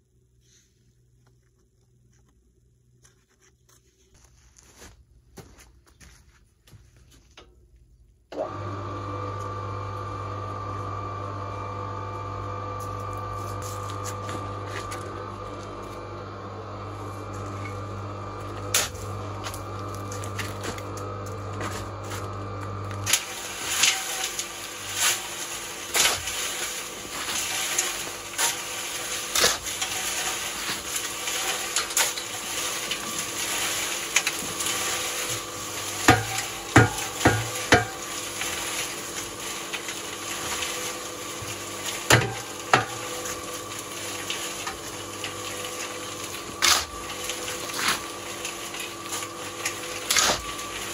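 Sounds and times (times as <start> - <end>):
metal shovel scraping: 12.8 - 16.1, 16.9 - 50.9.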